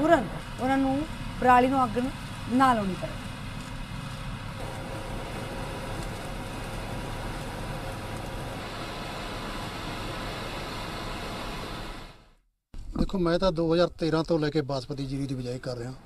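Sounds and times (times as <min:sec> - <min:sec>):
combine harvester engine drone: 0:00.0 - 0:12.4.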